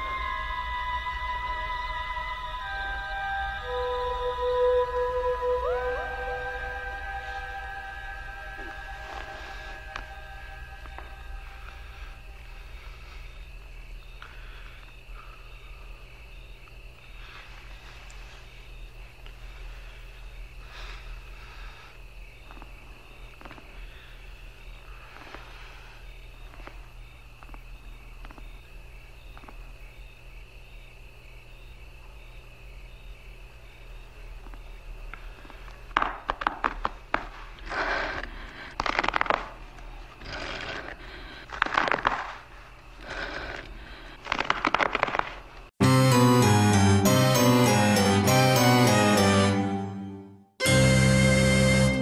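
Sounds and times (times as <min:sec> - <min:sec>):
thin steady high tone: 0:00.0 - 0:14.2.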